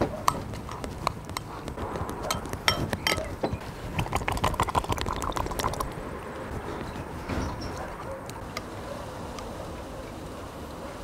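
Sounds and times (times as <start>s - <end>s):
metal spoon stirring in ceramic bowl: 0.3s - 3.4s, 4.0s - 5.9s.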